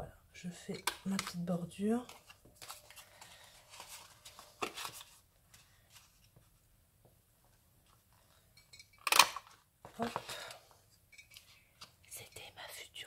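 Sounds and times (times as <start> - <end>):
paper rustling: 2.0 - 6.6.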